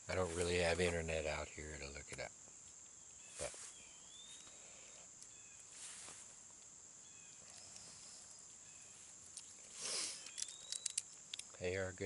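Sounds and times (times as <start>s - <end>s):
crickets droning: 0.0s - 12.0s
faint bird chirps: 1.4s - 12.0s
short rushing hiss: 9.7s - 10.4s.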